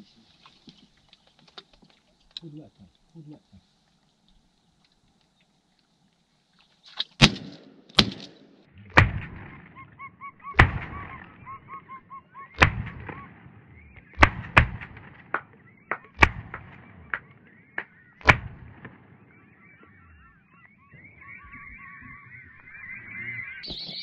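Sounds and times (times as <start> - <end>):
shotgun blasts: 7.2 - 9.9, 10.5 - 11.4, 12.6 - 19.6
whistling ducks calling: 9.4 - 24.0.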